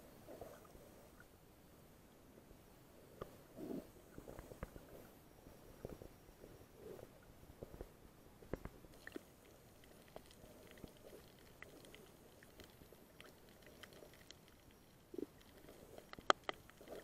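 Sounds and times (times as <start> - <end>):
small clicks and crackles: 6.8 - 17.0.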